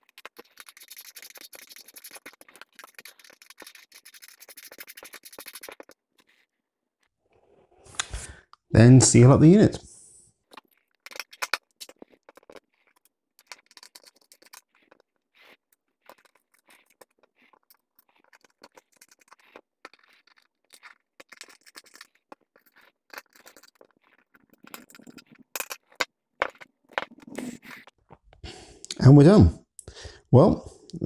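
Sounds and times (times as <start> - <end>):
screwdriver scraping and ticking: 0.0 - 6.5, 10.5 - 28.0.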